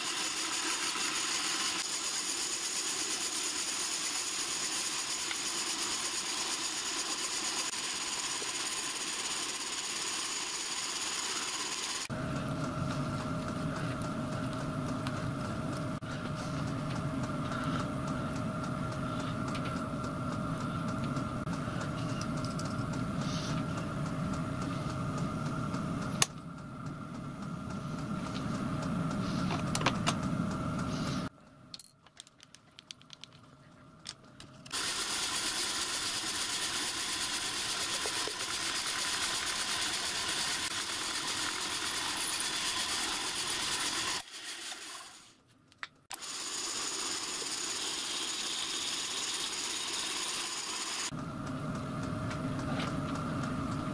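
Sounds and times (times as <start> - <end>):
drill press boring metal: 34.8 - 45.0, 46.1 - 51.1.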